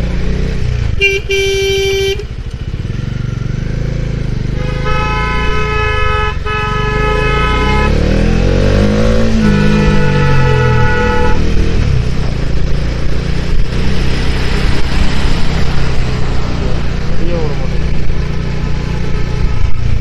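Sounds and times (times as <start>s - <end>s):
motorcycle engine running: 0.0s - 20.0s
vehicle horns honking: 0.9s - 2.4s, 4.5s - 11.6s.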